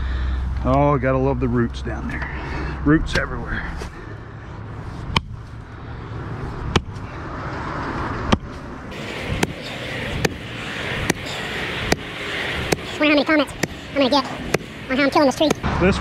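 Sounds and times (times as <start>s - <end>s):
digging tool chopping roots: 6.7s - 7.1s, 9.3s - 10.4s, 11.9s - 12.1s, 12.7s - 12.9s, 13.5s - 13.8s, 14.4s - 15.6s.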